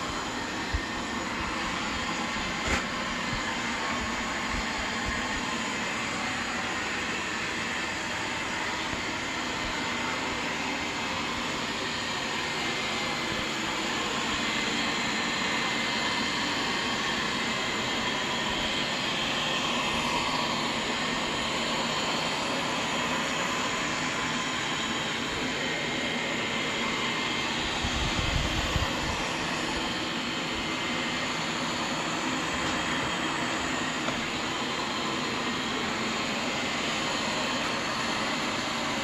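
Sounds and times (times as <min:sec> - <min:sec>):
robot vacuum whirring: 0:00.0 - 0:39.0.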